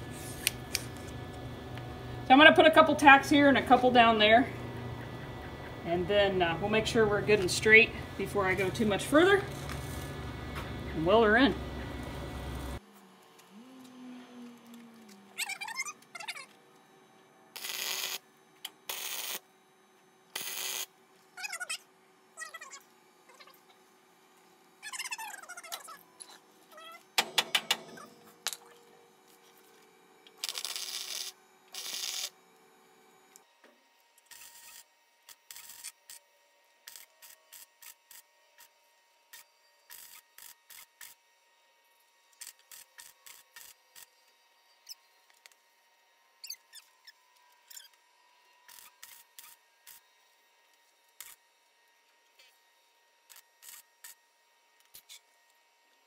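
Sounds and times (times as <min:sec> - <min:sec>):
crackling welding bursts: 0:17.6 - 0:19.5, 0:20.3 - 0:20.9, 0:30.4 - 0:32.4, 0:34.3 - 0:36.2, 0:36.8 - 0:38.7, 0:39.3 - 0:41.2, 0:42.4 - 0:44.1, 0:48.7 - 0:50.0.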